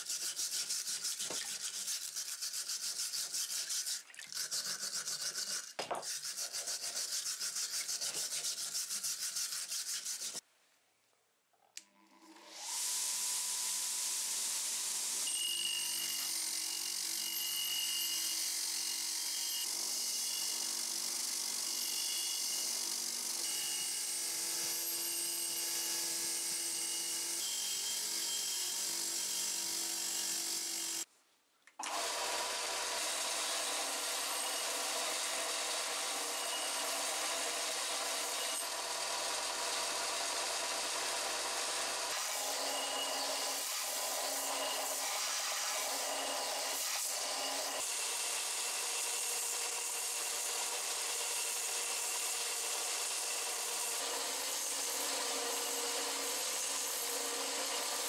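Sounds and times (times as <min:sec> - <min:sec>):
metal ground against sanding belt: 0:00.0 - 0:10.4.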